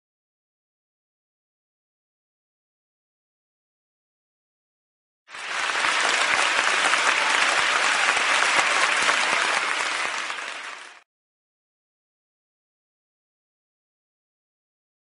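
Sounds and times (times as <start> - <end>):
crowd applauding: 5.3 - 11.1.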